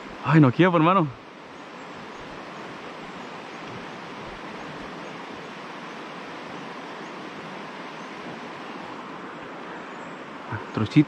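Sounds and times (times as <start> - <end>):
river water rushing: 0.0 - 11.0.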